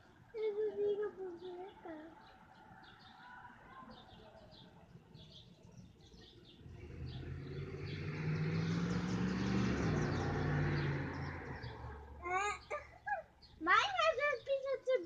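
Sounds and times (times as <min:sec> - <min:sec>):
small birds chirping: 0:00.0 - 0:15.0
passing motor vehicle: 0:06.5 - 0:12.8.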